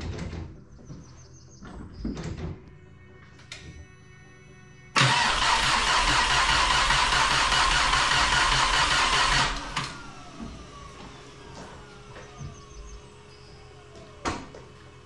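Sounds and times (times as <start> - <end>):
starter motor cranking engine: 5.0 - 14.2.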